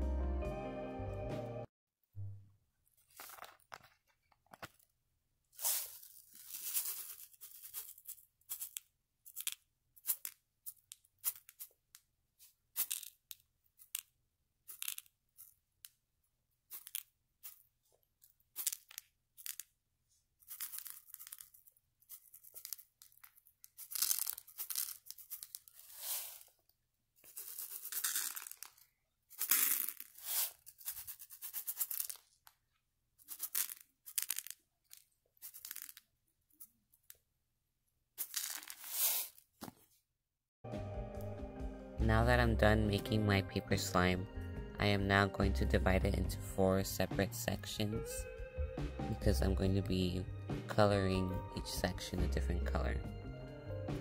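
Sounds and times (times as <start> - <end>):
foam beads pattering onto papier-mache: 5.6 - 11.8, 18.5 - 19.7, 20.4 - 26.5, 27.2 - 32.5, 33.2 - 36.1, 38.2 - 39.4.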